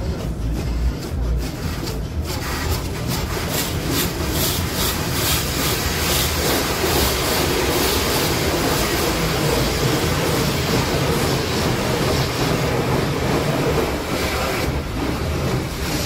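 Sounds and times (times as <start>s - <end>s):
water drumming on car: 2.4s - 16.0s.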